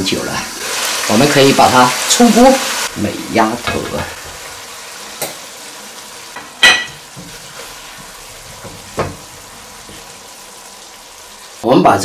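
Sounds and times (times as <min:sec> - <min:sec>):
sauce sizzling: 0:00.0 - 0:12.0.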